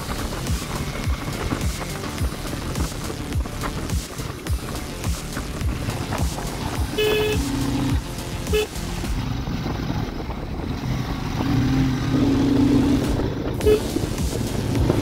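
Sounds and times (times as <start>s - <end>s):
motorcycle engine: 0.0s - 15.0s
road noise: 0.0s - 15.0s
lower steady horn tones: 6.6s - 9.0s, 11.7s - 15.0s
short high horn toots: 6.9s - 8.8s, 13.6s - 14.0s.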